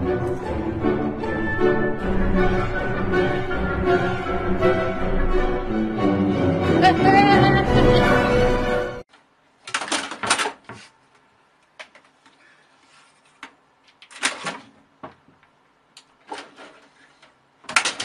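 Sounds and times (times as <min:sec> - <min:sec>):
kitten rustling and scraping: 0:12.7 - 0:13.4.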